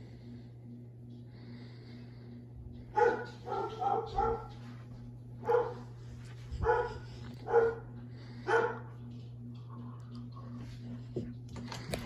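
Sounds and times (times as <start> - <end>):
ceiling fan hum: 0.0 - 12.0
dog barking: 2.9 - 4.6, 5.4 - 5.9, 6.6 - 8.9.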